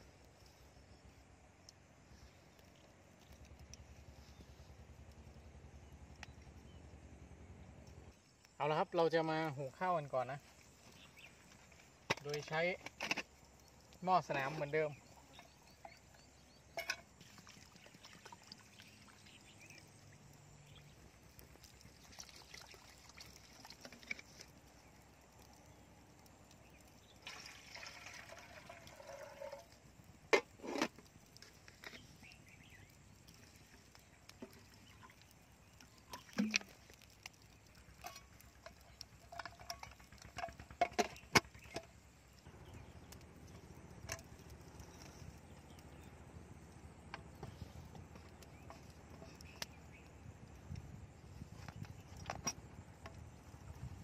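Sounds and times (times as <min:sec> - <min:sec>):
metal pot clinks and knocks: 0:16.7 - 0:17.2, 0:38.0 - 0:42.0
water poured into metal pot: 0:16.7 - 0:19.6, 0:21.9 - 0:24.5, 0:27.0 - 0:29.8.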